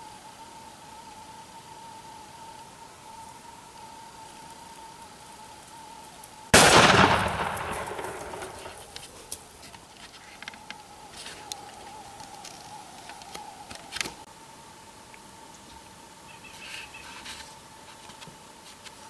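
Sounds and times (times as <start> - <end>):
gunshot with echo: 6.6 - 9.1
bird flapping on dry ground: 6.7 - 14.2.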